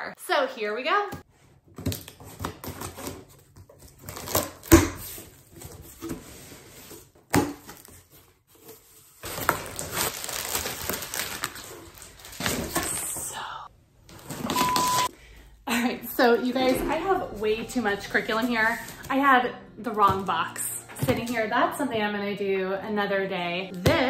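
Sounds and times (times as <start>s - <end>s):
scissors cutting cardboard box: 1.8s - 6.2s
plastic packing crinkling: 7.7s - 13.2s.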